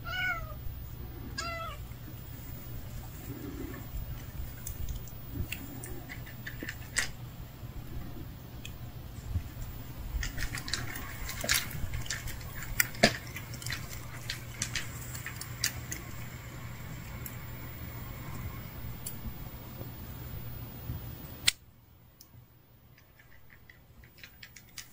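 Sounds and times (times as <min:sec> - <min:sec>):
low steady hum: 0:00.0 - 0:24.9
light clicks and rustles: 0:09.6 - 0:16.2, 0:22.9 - 0:24.9.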